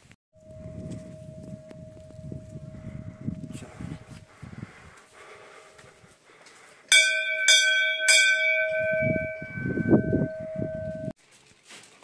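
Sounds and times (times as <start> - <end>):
brass temple bell ringing: 0.4 - 4.4, 6.9 - 11.2.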